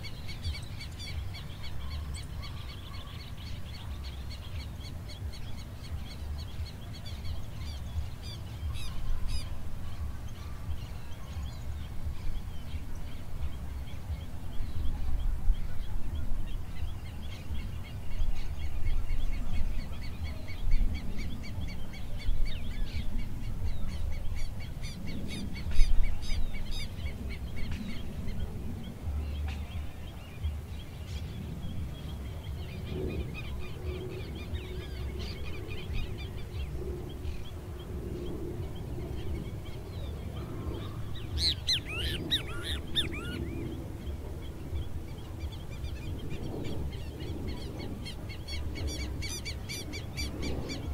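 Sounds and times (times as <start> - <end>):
birds calling and chirping: 0.0 - 50.9
steady low rumble: 0.0 - 50.9
harsh bird calls: 32.8 - 50.9.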